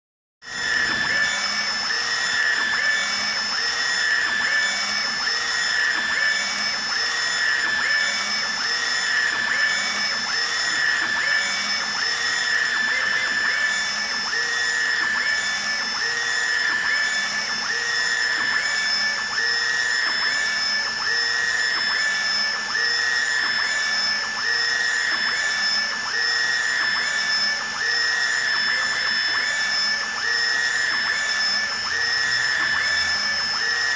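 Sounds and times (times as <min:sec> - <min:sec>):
printer mechanical whine: 0:00.5 - 0:33.9.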